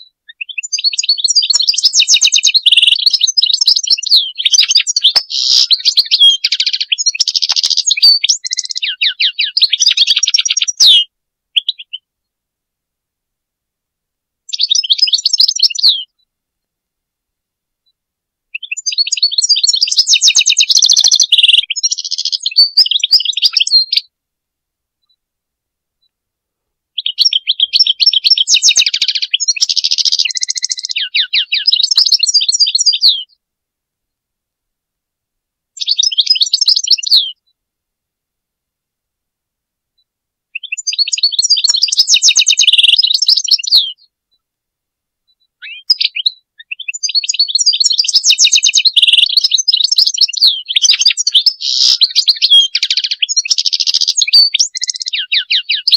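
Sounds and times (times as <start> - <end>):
goldfinch twittering song: 0.3 - 12.0, 14.5 - 16.1, 18.6 - 24.0, 27.0 - 33.3, 35.8 - 37.4, 40.6 - 44.0, 45.4 - 55.9.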